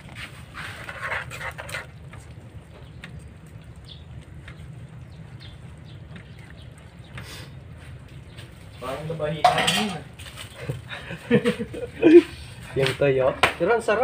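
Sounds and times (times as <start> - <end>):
steady low hum: 0.0 - 12.8
metal spoon scraping pan: 0.5 - 2.0, 9.4 - 10.1.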